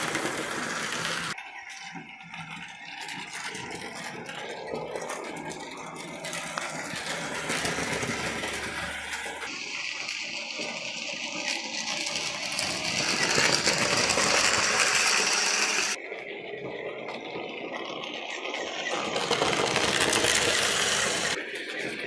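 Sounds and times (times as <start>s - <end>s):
model train motor whirr: 0.0s - 22.0s
wheels rattling over rails: 0.0s - 22.0s.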